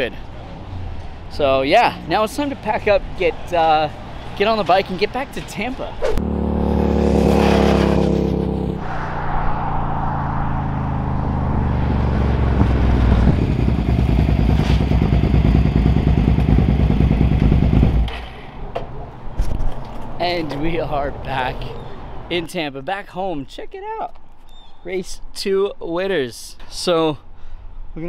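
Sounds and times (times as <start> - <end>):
motorcycle engine at speed: 6.1 - 9.1, 9.9 - 18.5.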